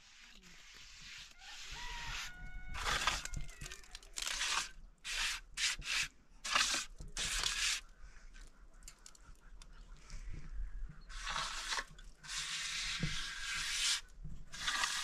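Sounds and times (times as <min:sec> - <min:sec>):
trowel scraping mortar: 0:00.0 - 0:07.9, 0:11.1 - 0:15.0.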